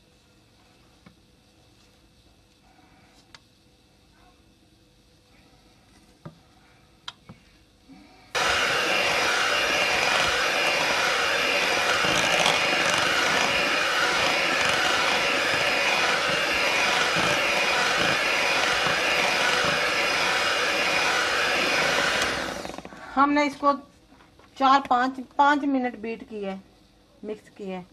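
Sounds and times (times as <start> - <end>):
electric hand mixer whisking batter: 8.4 - 22.9.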